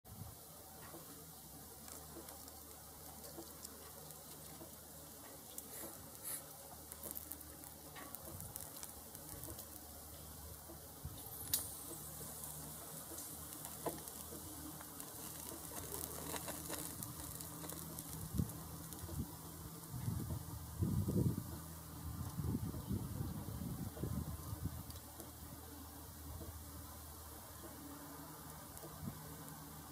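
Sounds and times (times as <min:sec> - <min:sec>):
electric motor hum: 0:01.0 - 0:29.9
meat sizzling: 0:01.3 - 0:21.9
fat spattering and popping: 0:01.8 - 0:10.0, 0:11.2 - 0:19.2.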